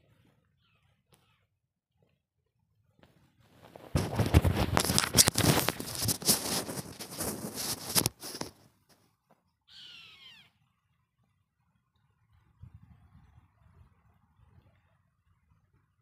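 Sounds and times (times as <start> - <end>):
crackling rustling on microphone: 3.0 - 9.4.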